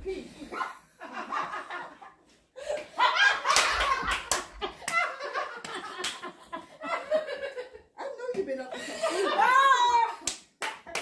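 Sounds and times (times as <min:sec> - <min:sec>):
people laughing and shrieking: 0:09.0 - 0:10.2.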